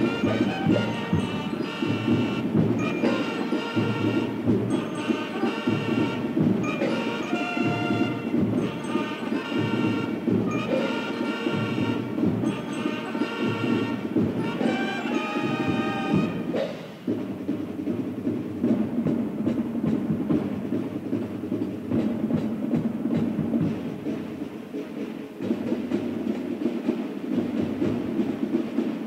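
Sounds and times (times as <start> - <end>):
bugles playing: 0.0 - 24.8
side and bass drums beat: 0.0 - 29.0.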